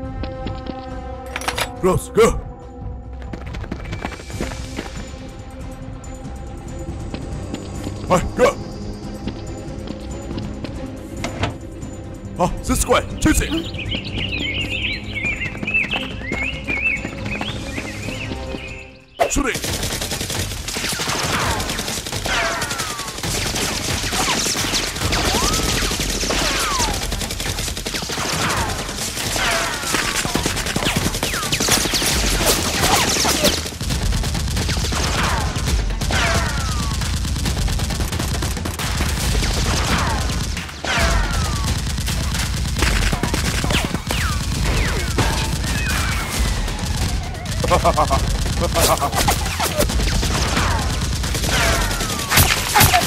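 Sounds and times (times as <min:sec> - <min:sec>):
rapid gunfire sound effects: 0:19.2 - 0:53.0.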